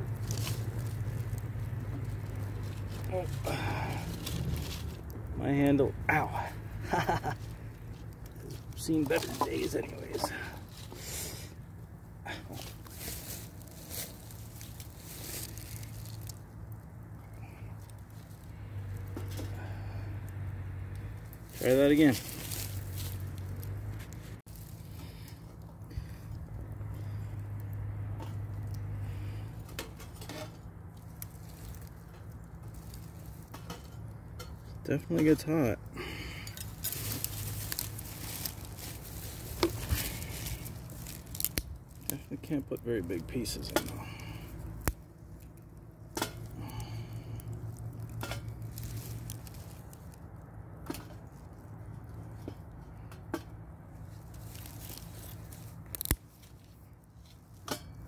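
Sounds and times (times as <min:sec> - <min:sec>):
fire crackling in stove: 0:00.0 - 0:58.0
sharp fire snaps: 0:00.0 - 0:58.0.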